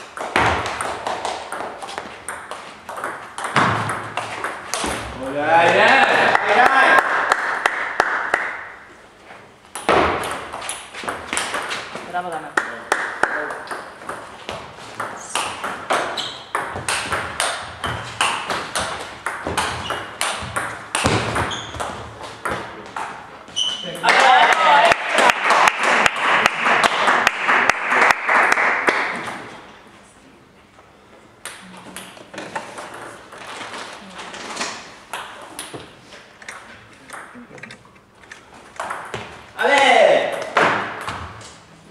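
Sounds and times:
table tennis balls clicking: 0.0s - 5.1s, 9.7s - 12.0s, 12.6s - 23.3s, 31.4s - 34.0s, 35.1s - 39.5s.

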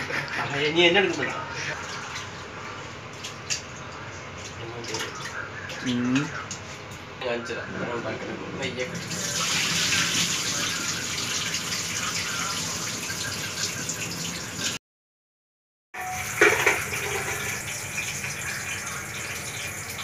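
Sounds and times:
water pouring into metal sink: 8.8s - 14.8s, 16.0s - 20.0s.

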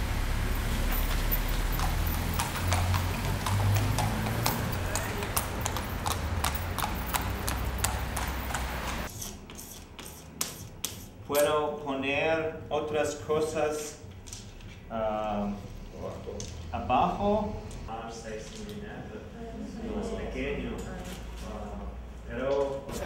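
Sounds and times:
hooves clip-clopping on pavement: 0.0s - 9.1s.

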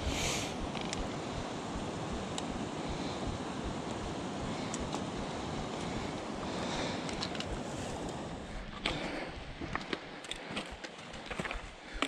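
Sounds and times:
scuffing hiss: 0.0s - 10.0s
wind rumbling on microphone: 0.0s - 11.9s
footsteps on loose rock: 8.8s - 12.0s.

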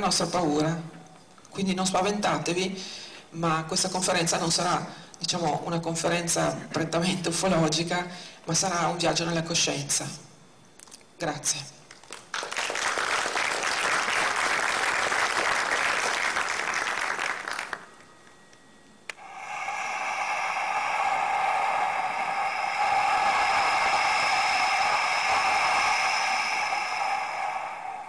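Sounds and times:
audience applauding: 12.1s - 17.9s
held chord of pure tones: 16.4s - 28.0s.

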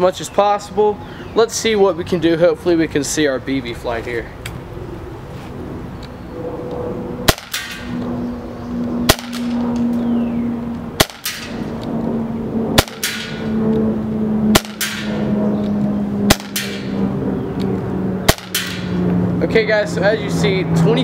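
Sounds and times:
airsoft pistol shots: 7.3s - 8.0s, 9.1s - 9.6s, 11.0s - 11.6s, 12.8s - 13.5s, 14.5s - 15.2s, 16.3s - 17.0s, 18.3s - 19.0s.

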